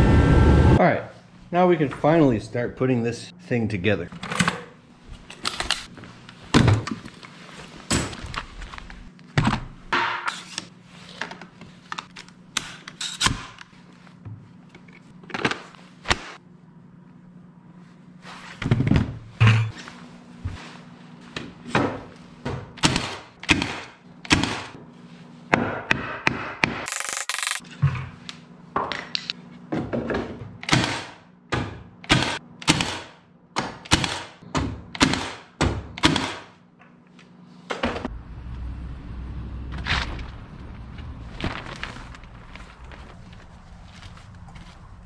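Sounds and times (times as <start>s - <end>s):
nail gun firing into wood: 30.6s - 31.2s, 32.1s - 34.4s, 35.0s - 36.5s.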